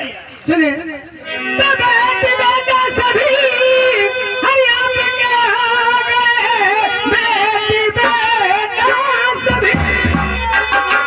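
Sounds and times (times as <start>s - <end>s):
woman singing through microphone: 1.4s - 10.8s
instrumental accompaniment: 8.9s - 11.0s.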